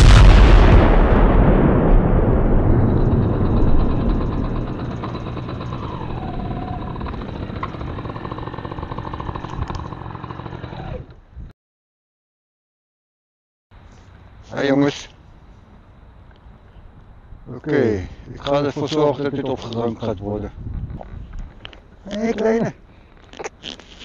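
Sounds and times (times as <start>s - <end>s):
explosion with rumble: 0.0s - 5.8s
steady noise: 0.0s - 9.4s.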